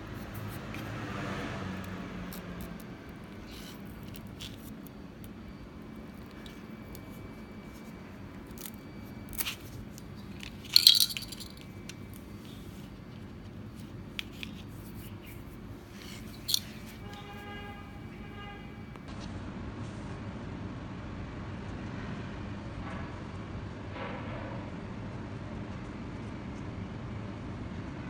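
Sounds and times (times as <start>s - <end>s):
bananas rustling and clicking: 0.0s - 17.8s.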